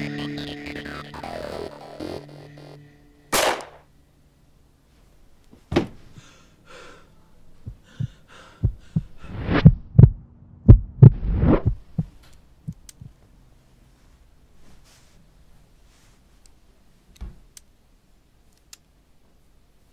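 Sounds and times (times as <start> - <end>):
heartbeat thumps: 7.6 - 13.2.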